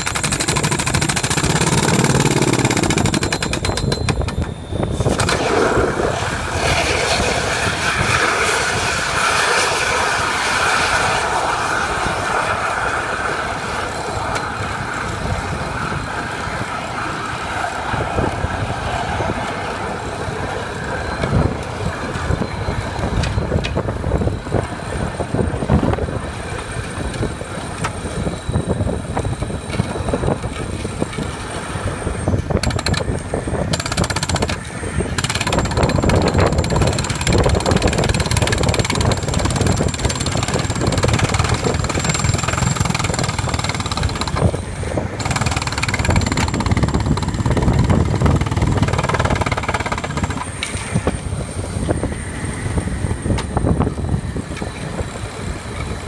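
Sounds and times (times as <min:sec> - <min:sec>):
rock drill hammering: 0:00.0 - 0:04.4, 0:33.7 - 0:34.6, 0:35.2 - 0:44.4, 0:45.2 - 0:50.5
engine noise: 0:00.0 - 0:56.0
compressed air rushing: 0:04.8 - 0:19.7.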